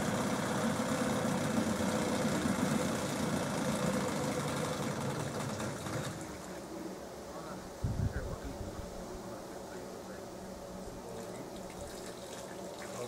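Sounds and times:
outboard motor idling: 0.0s - 6.7s.

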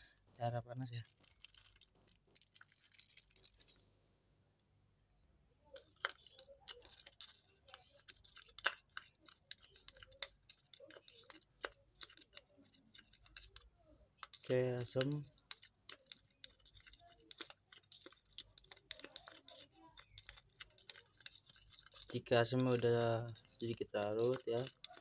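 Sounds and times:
plastic wrap crinkling: 0.0s - 4.0s, 5.7s - 25.0s.

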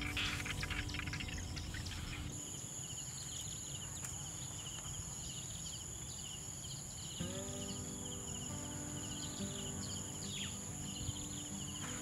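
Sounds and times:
high-pitched insect drone: 0.0s - 3.1s
fast insect chirping: 0.0s - 12.0s.

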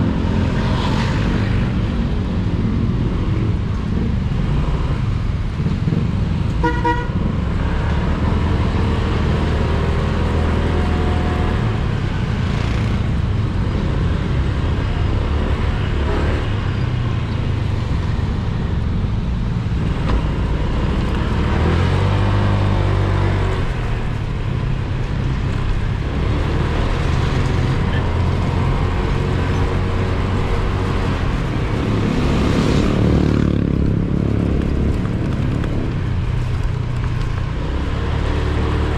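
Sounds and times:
rushing wind: 0.0s - 38.9s
horn toot: 6.6s - 7.2s.

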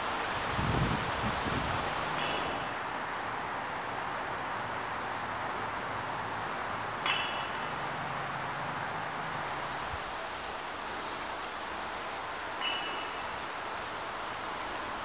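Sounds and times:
outdoor background hiss: 0.0s - 15.0s
high chirps: 7.0s - 8.3s, 12.6s - 13.4s.

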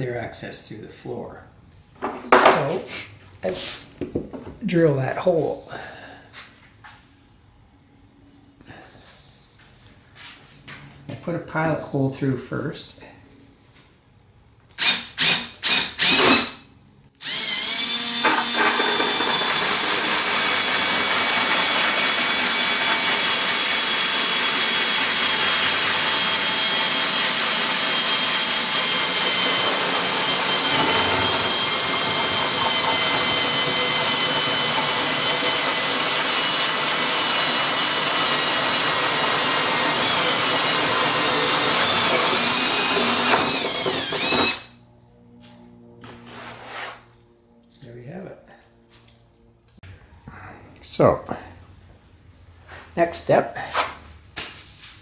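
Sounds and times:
cordless drill with hole saw: 14.8s - 16.6s, 17.2s - 44.7s.

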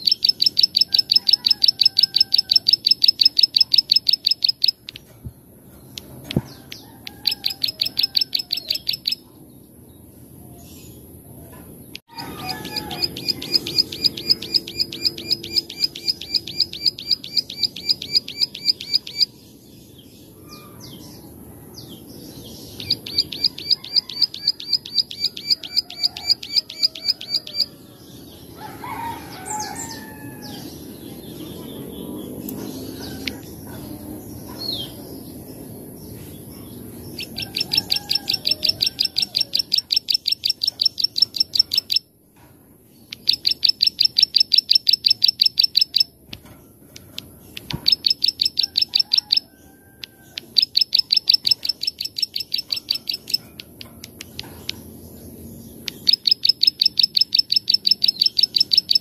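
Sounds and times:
bird rapid clicking song: 0.0s - 9.2s, 11.9s - 19.3s, 22.8s - 27.7s, 37.2s - 42.1s, 43.0s - 49.4s, 50.0s - 54.9s, 55.8s - 59.0s.

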